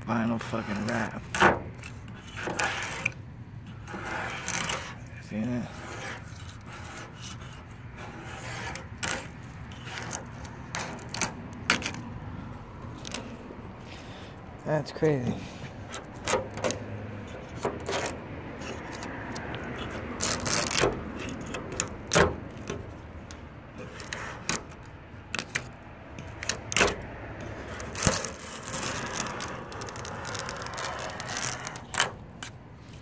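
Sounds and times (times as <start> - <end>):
razor scraper scratching paint: 0.1 - 12.0, 15.8 - 22.9, 23.8 - 33.0.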